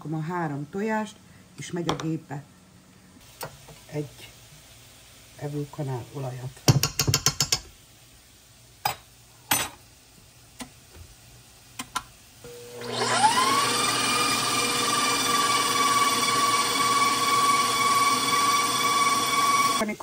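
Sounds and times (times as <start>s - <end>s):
stand mixer motor whining: 12.5s - 19.8s.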